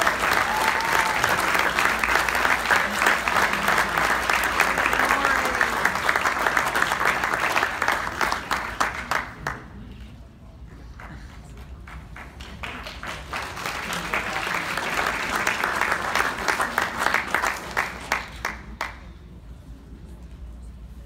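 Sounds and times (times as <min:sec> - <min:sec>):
audience applauding: 0:00.0 - 0:09.8, 0:11.8 - 0:19.0.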